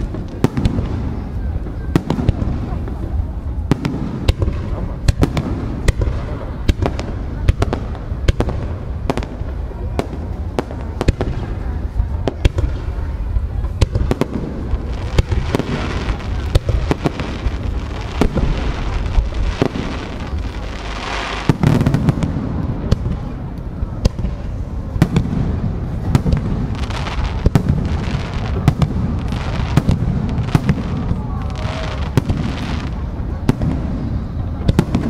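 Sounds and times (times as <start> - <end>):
crackling hiss: 0.0 - 35.0.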